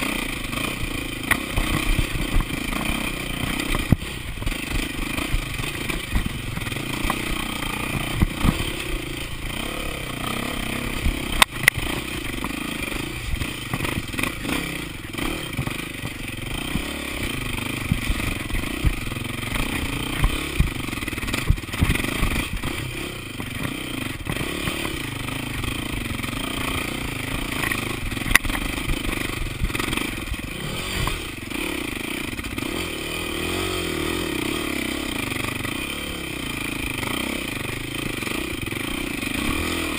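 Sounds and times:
bike rattling: 0:00.0 - 0:39.9
dirt bike engine running: 0:00.0 - 0:39.9.

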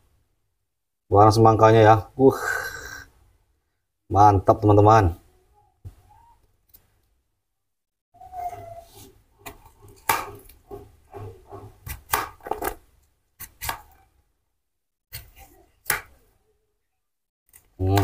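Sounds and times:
knife chopping watermelon: 0:09.4 - 0:12.8, 0:13.4 - 0:14.0, 0:15.1 - 0:16.2.

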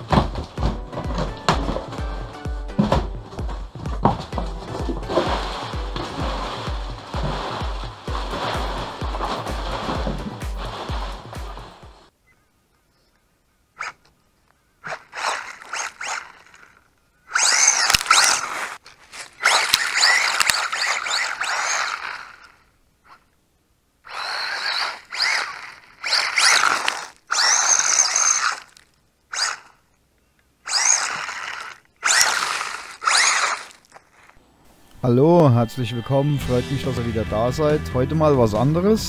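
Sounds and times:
toy car electric motor whining: 0:14.8 - 0:23.3, 0:24.0 - 0:29.8, 0:30.6 - 0:34.4.

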